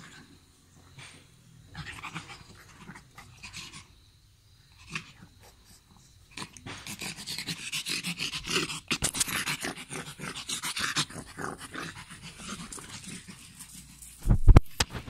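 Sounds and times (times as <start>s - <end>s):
dog play noises: 0.0s - 4.0s, 4.7s - 15.0s.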